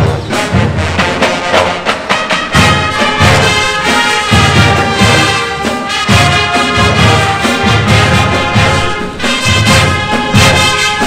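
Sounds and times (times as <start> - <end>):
low brass notes: 0.0 - 11.0
marching band playing: 0.0 - 11.0.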